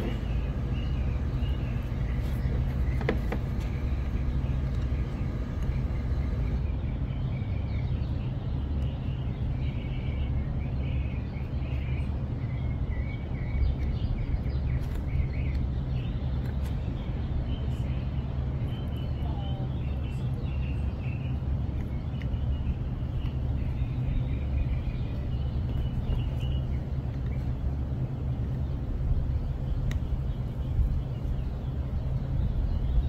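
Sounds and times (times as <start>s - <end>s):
birds chirping: 0.0s - 33.0s
steady low rumble: 0.0s - 33.0s.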